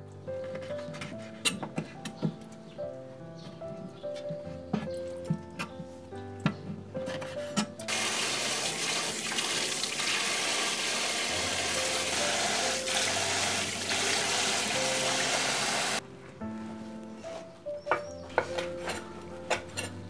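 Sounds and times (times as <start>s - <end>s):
water running from a tap: 7.9s - 16.0s.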